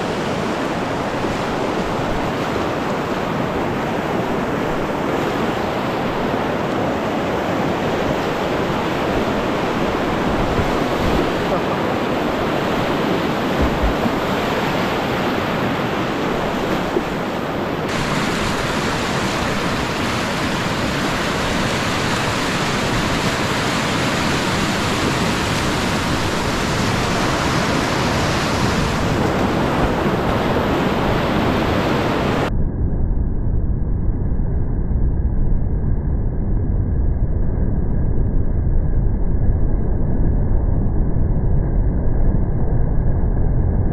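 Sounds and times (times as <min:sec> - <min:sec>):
whitewater rapids rushing: 0:00.0 - 0:32.5.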